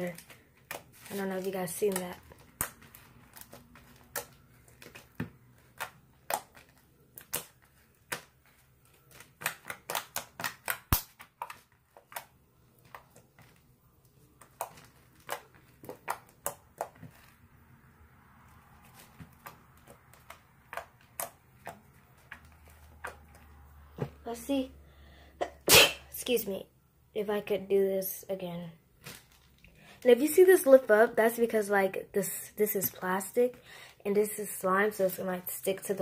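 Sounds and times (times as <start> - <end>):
slime kneaded by hand clicking: 1.8 - 8.4, 9.0 - 13.5, 14.4 - 17.2, 19.2 - 22.4.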